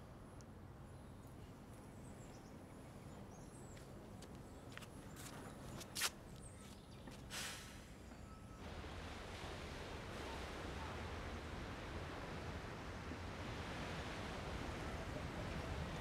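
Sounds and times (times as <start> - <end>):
wind: 0.0 - 16.0
breathy puff: 7.3 - 7.9
distant surf: 8.6 - 16.0.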